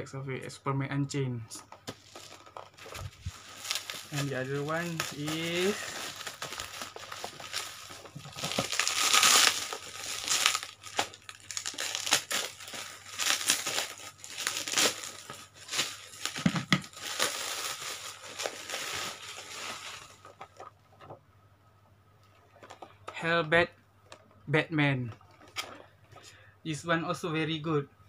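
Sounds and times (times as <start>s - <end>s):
bubble wrap crackling: 1.9s - 20.8s.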